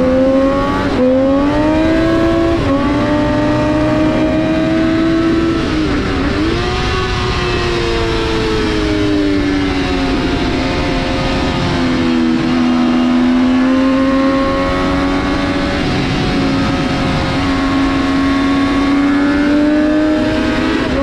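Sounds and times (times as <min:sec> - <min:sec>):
motorcycle engine revving: 0:00.0 - 0:21.0
wind rush: 0:00.0 - 0:21.0.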